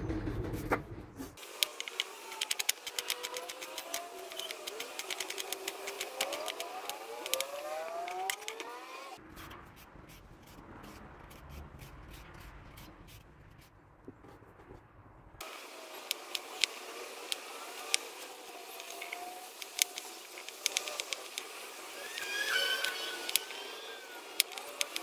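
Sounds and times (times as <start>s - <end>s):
carrot peeling scrapes: 1.4s - 14.9s, 16.1s - 25.0s
knife slicing onion on board: 1.6s - 8.8s
thin gliding whistling tones: 16.9s - 25.0s.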